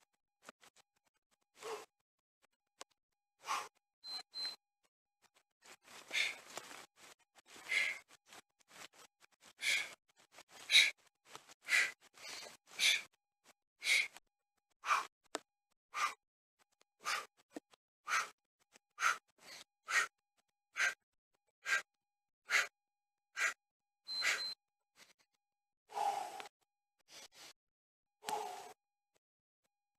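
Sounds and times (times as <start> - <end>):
man breathing hard: 1.6 - 1.9, 3.4 - 3.8, 5.8 - 13.2, 13.8 - 14.2, 14.8 - 15.1, 15.9 - 16.2, 17.0 - 17.4, 18.1 - 18.4, 19.0 - 20.2, 20.8 - 21.0, 21.6 - 21.9, 22.5 - 22.7, 23.4 - 23.6, 24.2 - 24.5, 25.9 - 26.5, 28.2 - 28.8.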